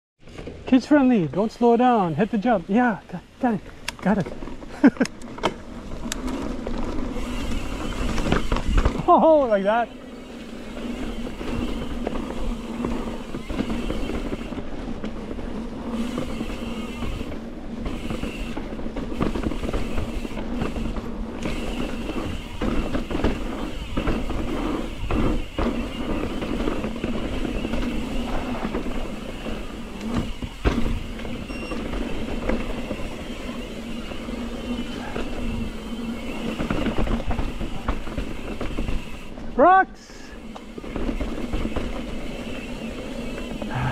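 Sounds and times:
bike knocking and rattling: 0.2 - 39.6, 40.4 - 43.9
tyres rolling over dirt: 0.2 - 39.6, 40.4 - 43.9.

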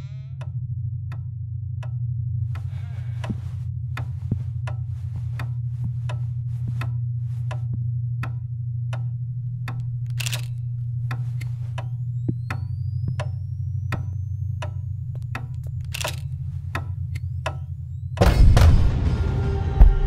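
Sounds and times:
low pulsing drone: 0.0 - 20.0
sharp clock-like ticks: 9.0 - 18.2.

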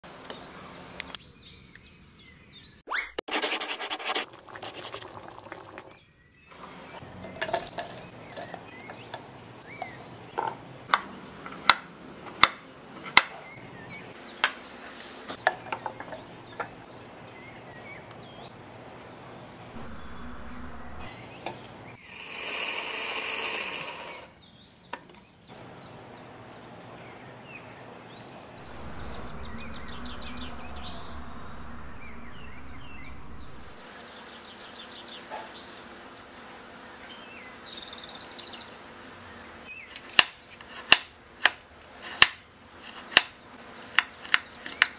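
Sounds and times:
birds chirping faintly: 5.8 - 22.0, 24.1 - 36.2
electric blender grinding: 22.2 - 24.2.

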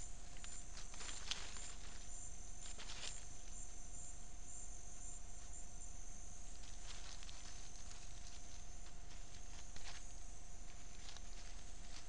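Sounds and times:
faint hum: 0.0 - 12.0
insects buzzing: 0.0 - 12.0
soft ticks or rustles: 0.2 - 3.8, 6.4 - 12.0.

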